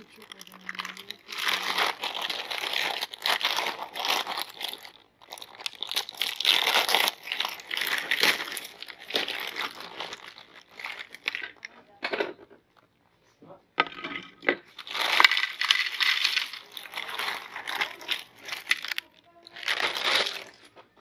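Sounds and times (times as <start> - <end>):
plastic bag crinkling: 0.0 - 11.9, 14.6 - 21.0.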